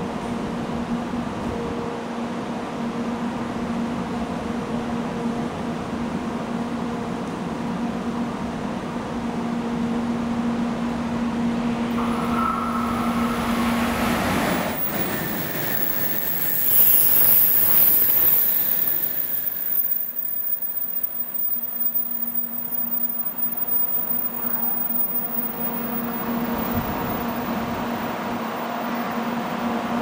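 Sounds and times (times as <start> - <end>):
high-speed train passing: 0.0 - 30.0
steady hum: 11.8 - 30.0.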